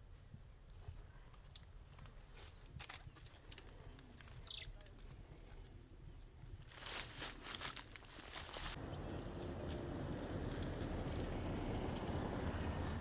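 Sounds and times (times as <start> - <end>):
monkey chirping: 3.0 - 3.4, 4.2 - 4.7, 7.6 - 8.5
faint bird chirps: 3.0 - 5.9
car rolling past: 8.8 - 13.0.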